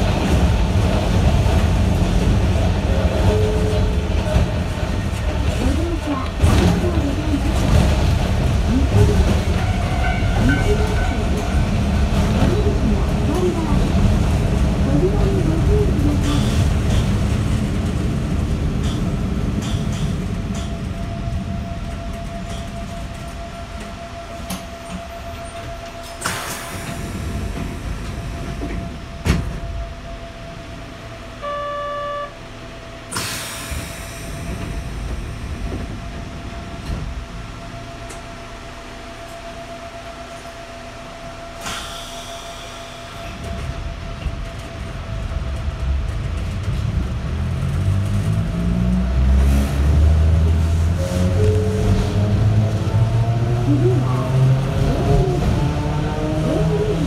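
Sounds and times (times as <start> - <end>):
train interior hum and rumble: 0.0 - 57.0
short tone: 31.4 - 32.4.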